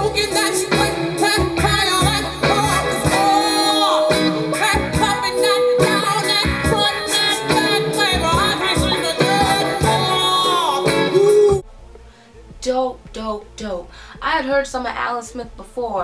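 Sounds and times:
live band: 0.0 - 11.6
woman singing with vibrato: 0.0 - 11.7
drums: 0.0 - 16.0.

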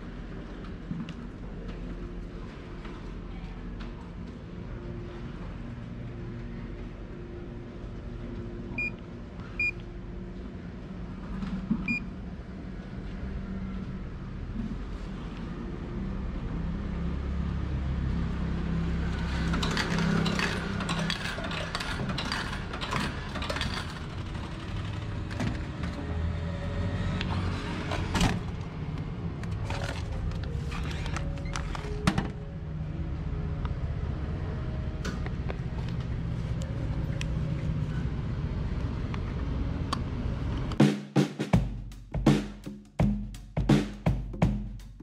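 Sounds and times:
vending machine low hum: 0.0 - 40.8
clicking and rattling: 19.5 - 25.7.

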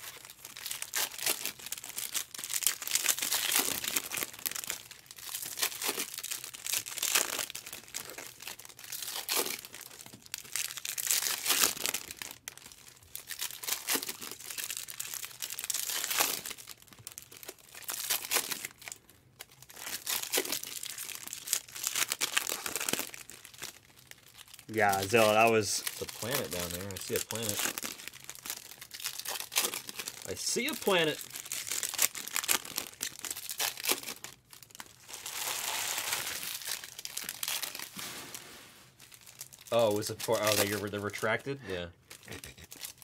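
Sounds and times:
plastic wrapping tearing and crinkling: 0.0 - 43.0.

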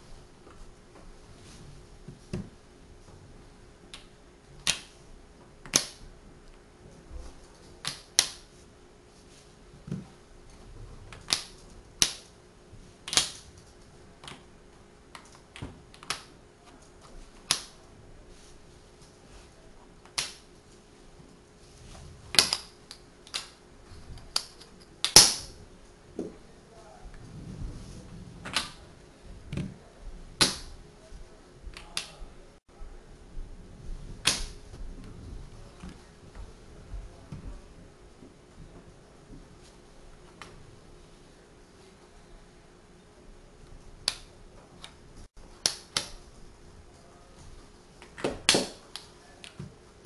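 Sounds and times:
wooden blocks clicking together: 22.4 - 23.6.

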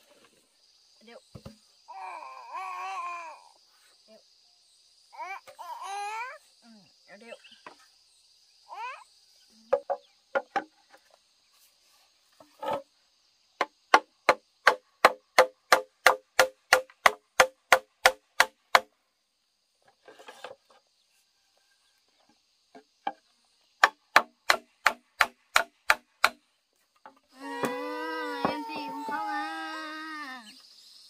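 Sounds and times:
tool knocking on wood: 9.7 - 10.8, 22.7 - 23.2.

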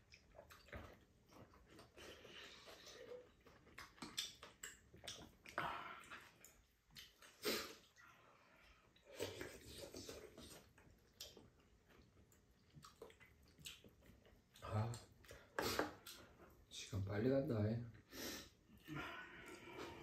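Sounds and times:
chewing: 0.0 - 16.6
wet slurping: 9.0 - 11.4.

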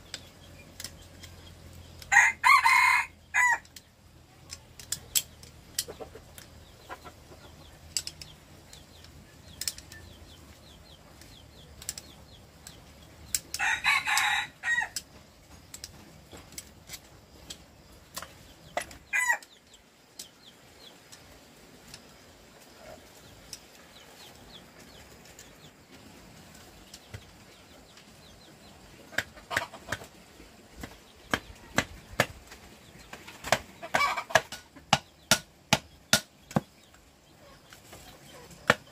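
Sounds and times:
rooster crowing: 2.1 - 3.7, 13.6 - 15.0, 19.1 - 19.4
tools clicking and tapping: 3.6 - 6.6, 7.8 - 20.4.

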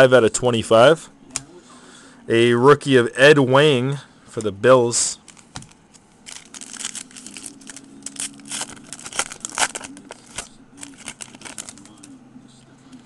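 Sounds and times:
foil wrapper crinkling and tearing: 5.2 - 12.1.

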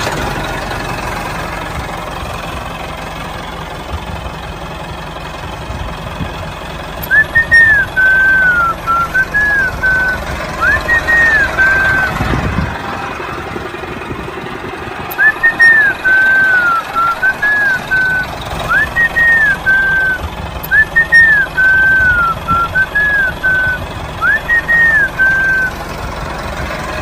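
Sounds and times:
low steady rumble: 0.0 - 27.0
person whistling a tune: 7.0 - 12.2, 15.1 - 25.8.

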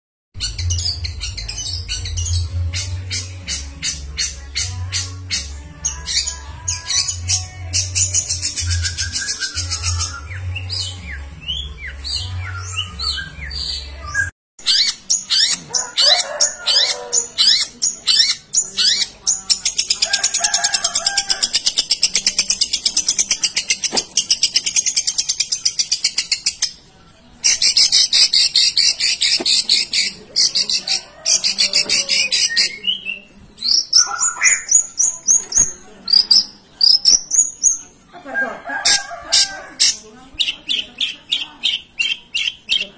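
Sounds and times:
bird singing trills and whistles: 5.9 - 15.6, 31.6 - 37.8.

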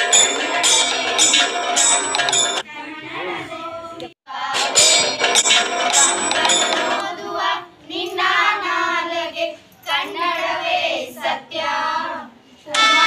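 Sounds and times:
girls singing unaccompanied: 2.7 - 5.1, 6.0 - 13.0.

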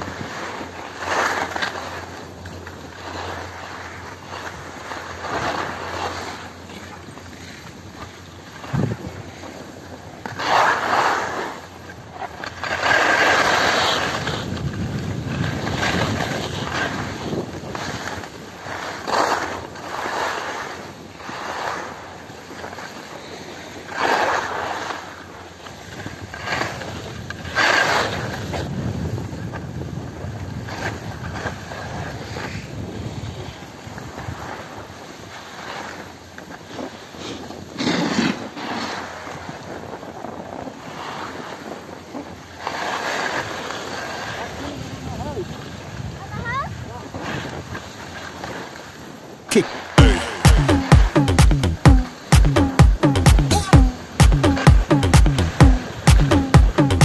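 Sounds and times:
skis scraping on hard snow: 0.0 - 50.0, 55.5 - 56.1
wind rushing over microphone: 8.7 - 9.3, 14.0 - 18.0.

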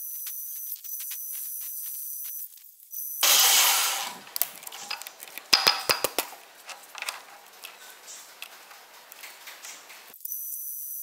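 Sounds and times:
lathe cutting hiss: 3.2 - 5.6
sharp metal clanks and knocks: 3.2 - 10.1.

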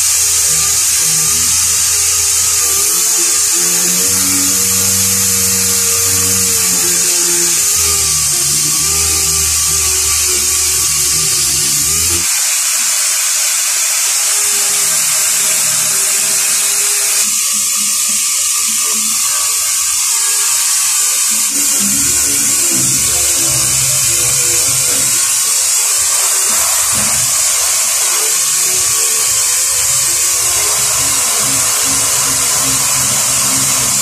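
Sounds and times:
pneumatic sander hissing: 0.0 - 34.0.

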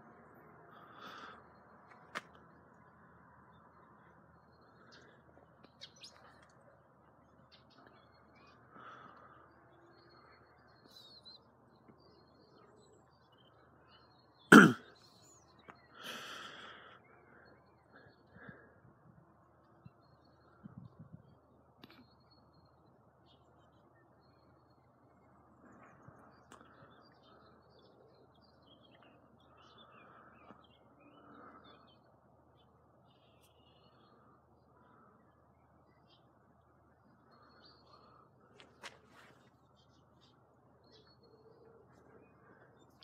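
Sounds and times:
faint bird chirps: 3.5 - 43.0
person clearing throat: 14.5 - 14.8
person coughing: 14.5 - 14.8.

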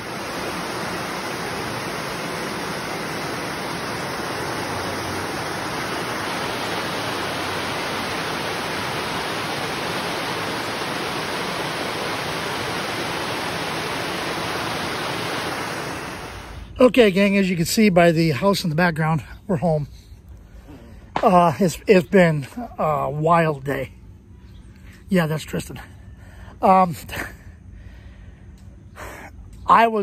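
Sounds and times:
stream tumbling over rocks: 0.0 - 16.5.

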